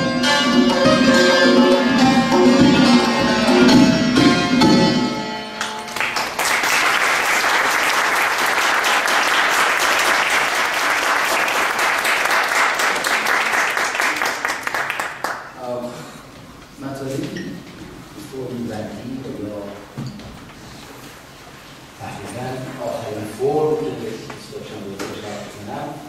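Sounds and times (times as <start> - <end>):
hand drum strokes: 0.4 - 5.0
audience applause: 5.8 - 15.5.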